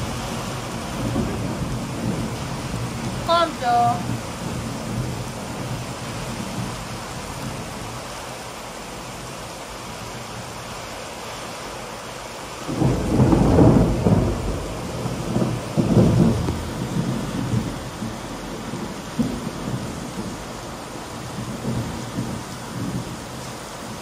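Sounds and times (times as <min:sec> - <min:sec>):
low rumble of thunder: 0:00.0 - 0:08.1, 0:12.6 - 0:24.0
steady rain falling: 0:00.0 - 0:24.0.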